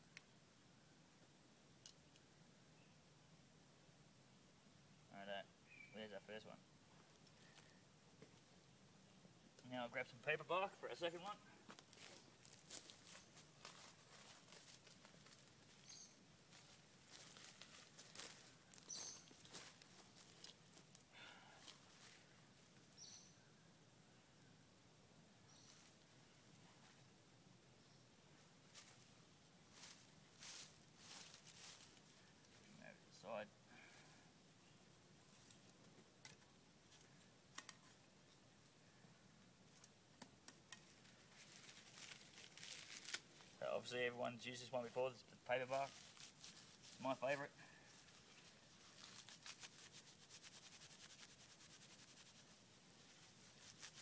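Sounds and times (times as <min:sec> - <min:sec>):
high bird chirps: 0:05.7 - 0:06.0, 0:15.8 - 0:16.2, 0:18.8 - 0:19.3, 0:23.0 - 0:23.5
footsteps through dry leaves: 0:11.7 - 0:21.0, 0:28.7 - 0:29.1, 0:29.7 - 0:32.2, 0:41.1 - 0:43.6, 0:45.7 - 0:54.0.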